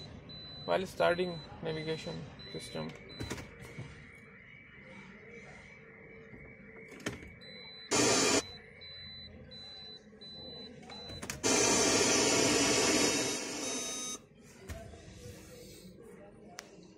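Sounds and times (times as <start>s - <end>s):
loud hiss from car audio: 11.4s - 13.6s
soft high beep: 13.2s - 14.2s.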